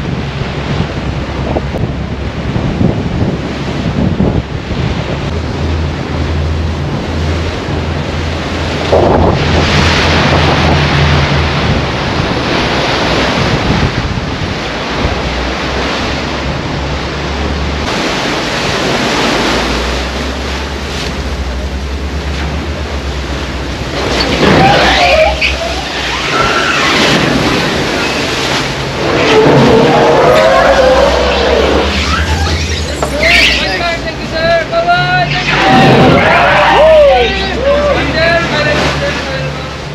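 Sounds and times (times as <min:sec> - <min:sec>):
wind buffeting microphone: 0:00.0 - 0:20.6
low diesel engine drone: 0:00.0 - 0:26.2, 0:27.3 - 0:39.9
water rushing along boat hull: 0:00.0 - 0:39.9.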